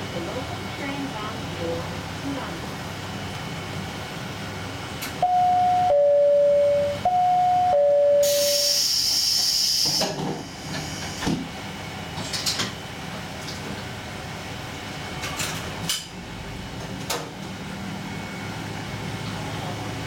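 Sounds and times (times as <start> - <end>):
two-note train chime: 5.2 - 8.9
air hiss: 8.2 - 11.4
pneumatic doors clunking shut: 8.2 - 11.6.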